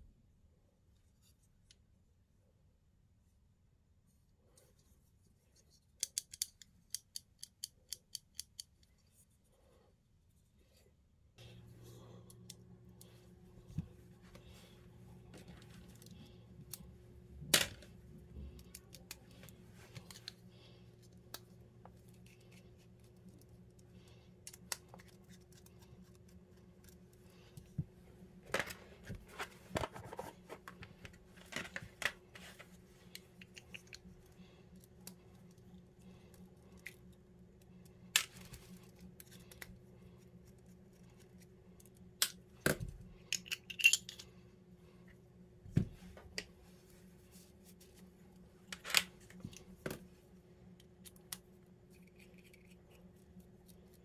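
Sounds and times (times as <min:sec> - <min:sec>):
faint steady hum: 0:00.0 - 0:54.0
pistol parts clicking and knocking: 0:06.0 - 0:08.9.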